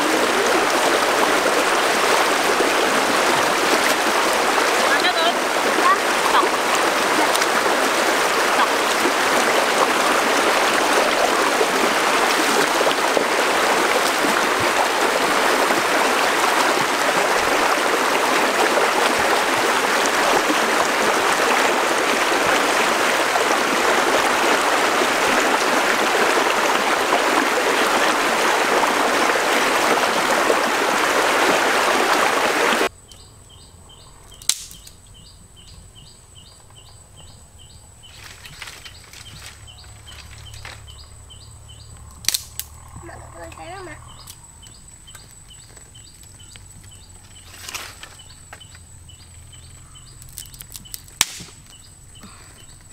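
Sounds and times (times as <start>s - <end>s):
people splashing in water: 0.0s - 32.9s
stream rushing over rocks: 0.0s - 32.9s
sharp click: 34.4s - 35.0s, 42.2s - 42.7s.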